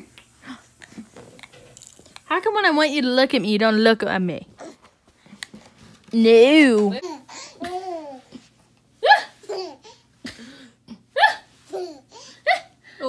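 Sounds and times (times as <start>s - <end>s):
baby laughing: 7.0s - 8.4s, 9.0s - 10.1s, 11.2s - 12.7s
woman laughing: 9.0s - 9.8s.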